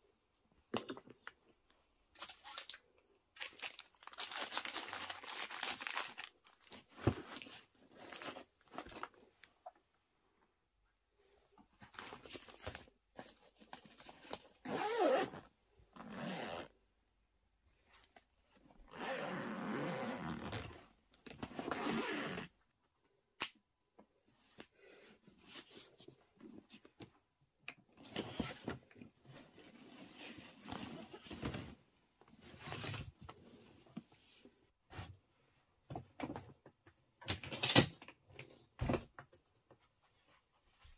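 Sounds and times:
suitcase zipper: 14.6s - 16.8s, 18.9s - 20.8s, 21.4s - 22.6s.

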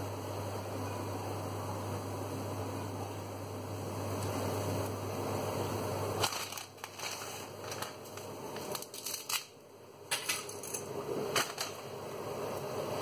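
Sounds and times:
steady low hum: 0.0s - 13.0s
dry spaghetti clicking and rattling: 6.2s - 11.9s.

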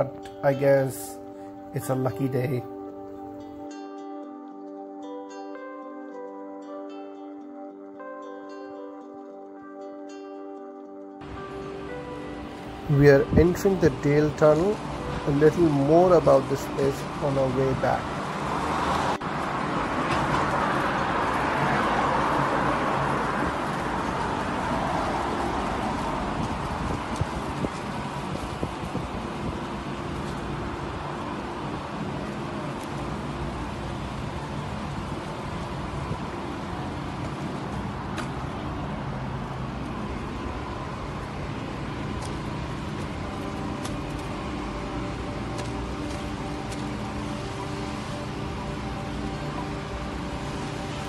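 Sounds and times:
street traffic hum: 11.2s - 51.0s.

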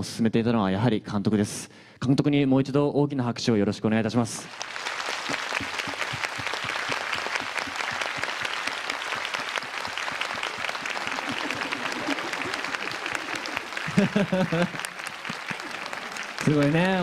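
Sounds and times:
audience applause: 4.4s - 17.0s.

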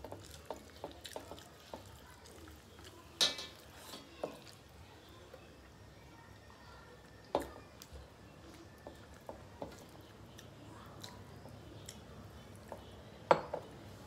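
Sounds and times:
chewing: 0.0s - 4.7s, 7.0s - 12.9s.

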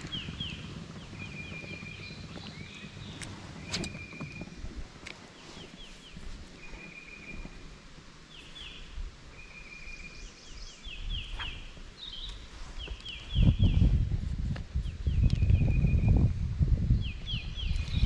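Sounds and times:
bird singing: 0.0s - 4.6s, 5.2s - 13.9s, 14.9s - 16.3s, 16.9s - 18.0s
low rumble: 0.0s - 9.0s.

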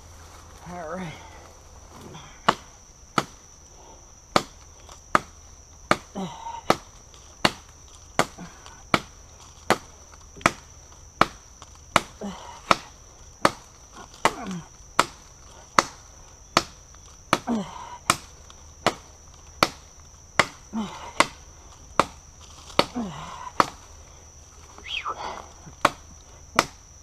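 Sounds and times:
knife chopping into rotten wood: 12.0s - 15.2s, 20.4s - 20.6s, 22.0s - 22.2s.

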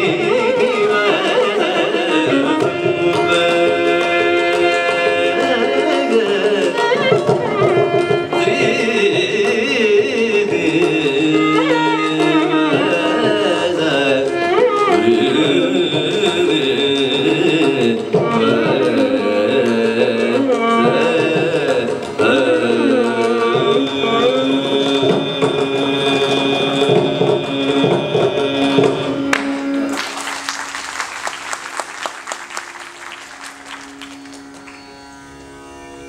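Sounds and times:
tambura drone: 0.0s - 10.0s, 28.3s - 36.0s
man singing: 0.0s - 29.6s
hand drum: 0.0s - 30.1s
violin: 0.0s - 36.0s.

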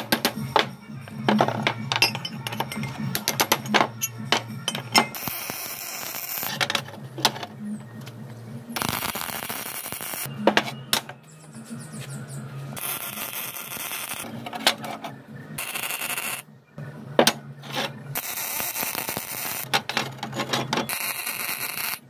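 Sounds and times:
background music: 0.0s - 21.0s
electric welding crackle: 5.1s - 6.8s, 8.8s - 10.3s, 12.8s - 14.3s, 15.6s - 16.5s, 18.2s - 19.8s, 20.9s - 22.0s.

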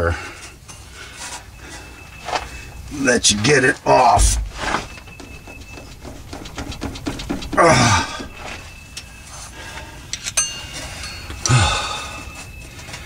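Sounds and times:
metal tool scraping and clicking: 10.1s - 11.4s
person grunting: 11.5s - 12.0s.

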